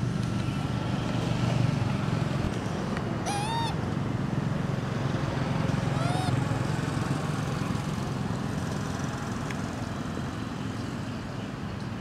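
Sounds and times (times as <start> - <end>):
monkey cry: 3.2 - 3.8, 5.9 - 6.4.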